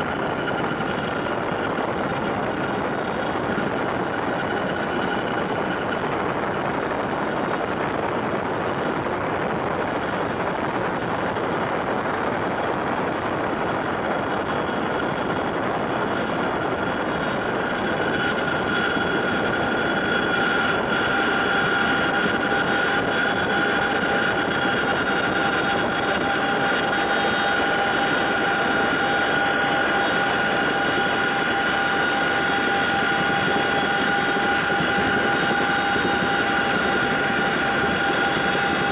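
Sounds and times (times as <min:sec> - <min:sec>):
helicopter engines and rotors: 0:00.0 - 0:38.9.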